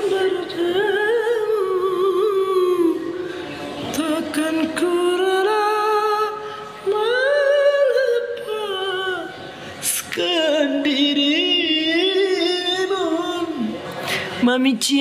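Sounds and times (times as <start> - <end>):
man singing unaccompanied: 3.9 - 13.8.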